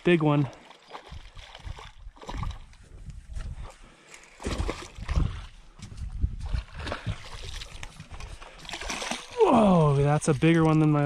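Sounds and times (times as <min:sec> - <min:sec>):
fish splashing in water: 0:06.5 - 0:10.9.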